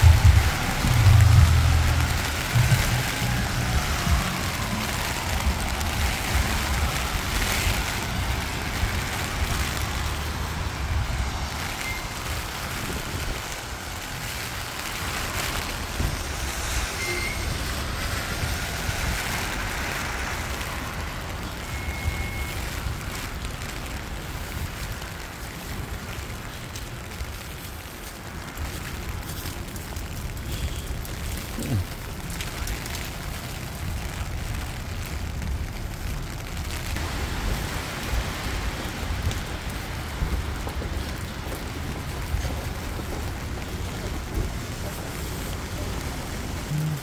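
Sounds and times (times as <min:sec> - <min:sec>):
low rumble of engines: 0:00.0 - 0:47.0
vehicles swishing past on wet pavement: 0:00.0 - 0:47.0
wet road noise hiss: 0:00.0 - 0:47.0
brief high squeaks: 0:16.8 - 0:17.6.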